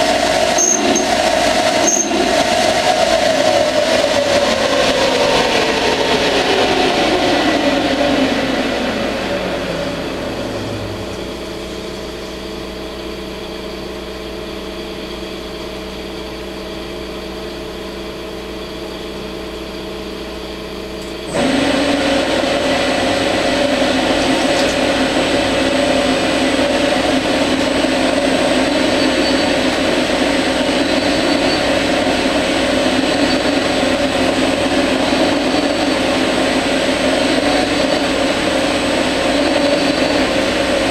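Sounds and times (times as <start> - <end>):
thin high whine: 0.0 - 4.4, 8.9 - 40.9
lathe spindle motor: 0.0 - 7.9, 21.0 - 40.9
machine hum: 0.0 - 40.9.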